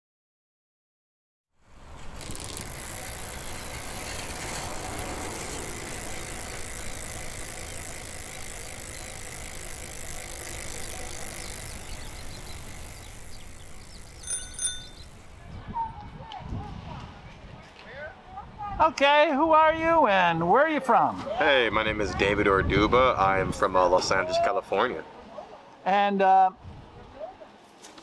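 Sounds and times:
bicycle freewheel ticking: 0:01.6 - 0:15.3
bicycle bell ding: 0:14.2 - 0:15.2.

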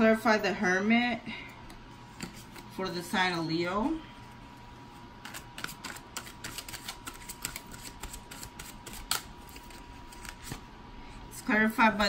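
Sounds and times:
cards shuffling clicks: 0:05.2 - 0:10.6.

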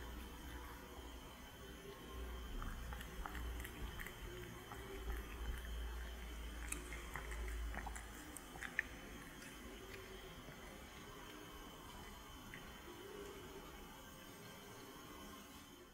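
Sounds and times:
low steady hum: 0:00.0 - 0:15.9
cat chewing wet mouth clicks: 0:06.5 - 0:10.1.

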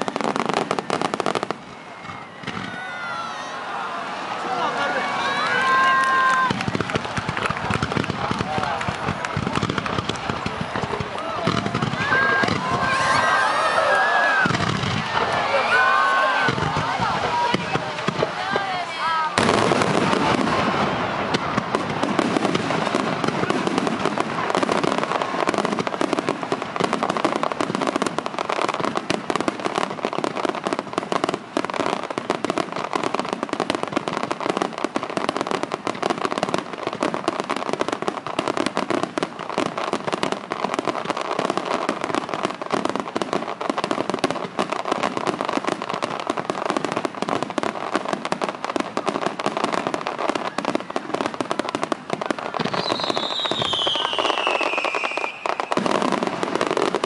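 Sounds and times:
fireworks popping and crackling: 0:00.0 - 0:57.0.

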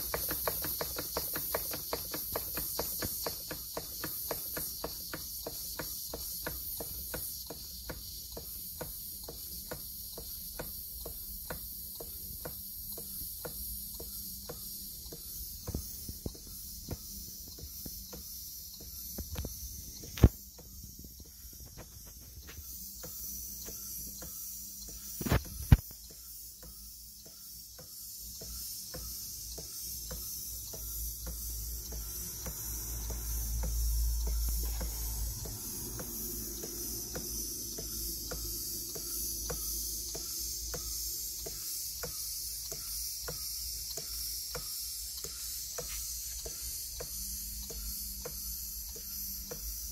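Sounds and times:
model steam engine beating: 0:00.0 - 0:17.0, 0:27.8 - 0:49.9
steam hissing: 0:00.0 - 0:49.9.

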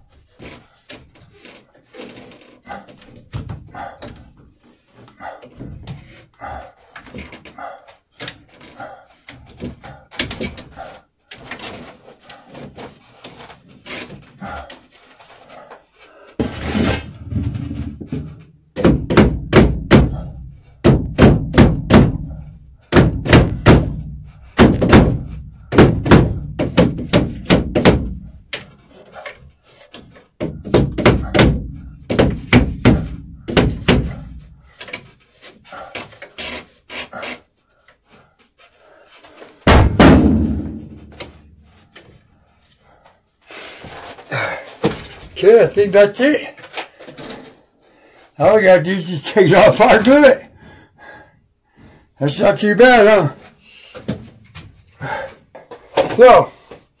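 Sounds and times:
knocks on plastic pipe: 0:17.3 - 0:28.7, 0:30.4 - 0:34.6, 0:39.7 - 0:41.4.

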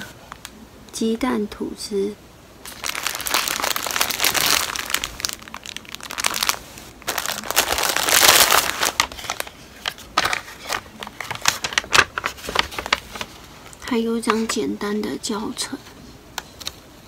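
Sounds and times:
plastic bag crinkling: 0:02.6 - 0:13.4
paper sheet rustling: 0:02.6 - 0:14.6.

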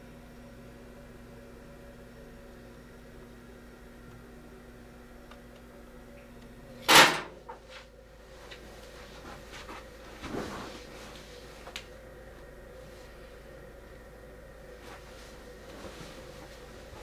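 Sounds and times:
door banging shut: 0:06.9 - 0:07.3.

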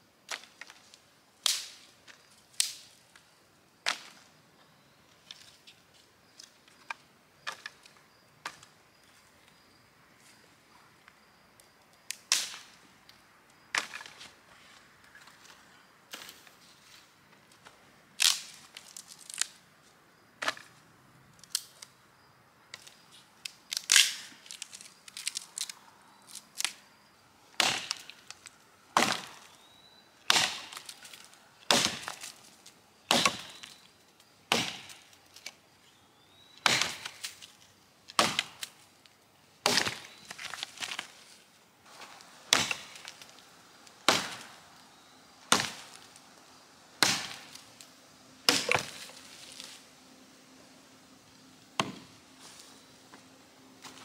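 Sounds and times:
axe chopping wood: 0:27.6 - 0:28.1, 0:29.0 - 0:29.5, 0:30.2 - 0:30.9, 0:31.7 - 0:32.3, 0:33.1 - 0:33.8, 0:34.5 - 0:35.1, 0:36.6 - 0:37.3, 0:38.1 - 0:38.7, 0:39.6 - 0:41.0, 0:42.5 - 0:43.2, 0:44.0 - 0:44.6, 0:45.5 - 0:46.1, 0:47.0 - 0:47.6, 0:48.5 - 0:49.1, 0:51.8 - 0:52.1.

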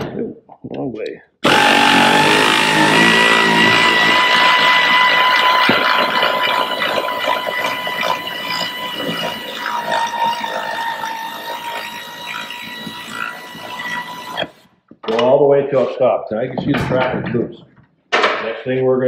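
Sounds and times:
air ratchet whining: 0:01.4 - 0:14.7.

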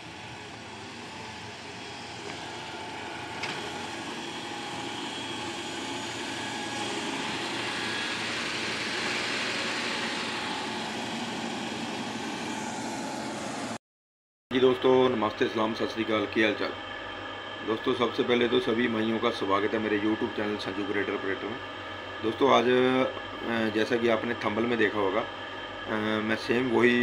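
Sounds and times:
diesel engine running: 0:00.0 - 0:13.8.

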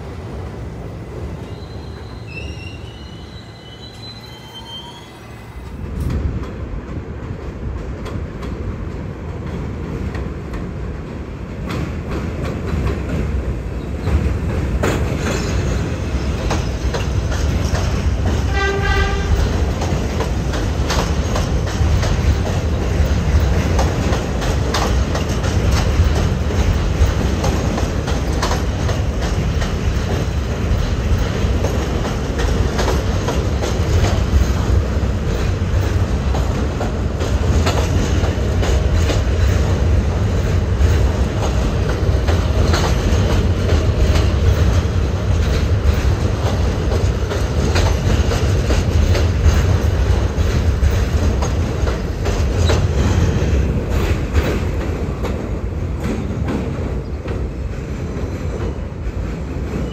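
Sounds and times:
subway train rumbling past: 0:00.0 - 0:59.9
train horn blast: 0:18.5 - 0:19.5.

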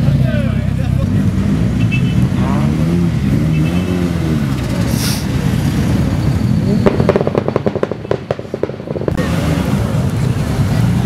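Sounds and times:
exhaust pops and crackles: 0:06.8 - 0:09.4.

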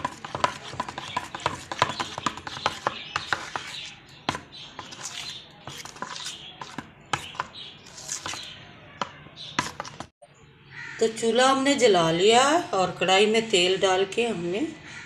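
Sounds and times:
spoon tapping plastic bowl: 0:00.0 - 0:03.7
wet batter slapping: 0:00.0 - 0:10.1.

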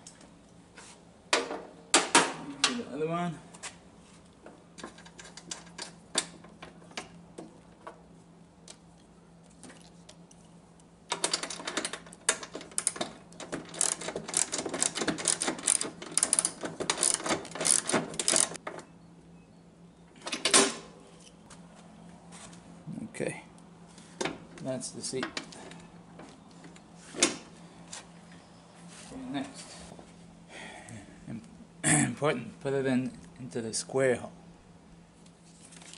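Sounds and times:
rapid clicking and rattling: 0:11.1 - 0:18.6.

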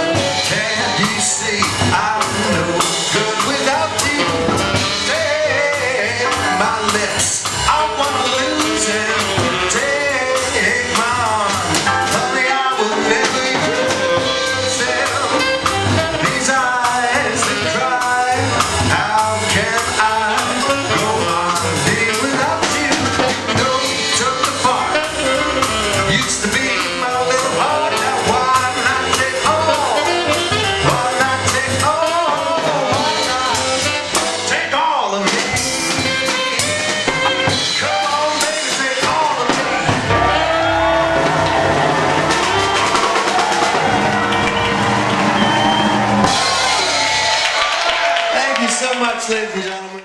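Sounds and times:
man singing into a microphone: 0:00.0 - 0:40.0
upright bass: 0:00.0 - 0:49.0
piano: 0:00.0 - 0:49.6
live band playing: 0:00.0 - 0:50.0.

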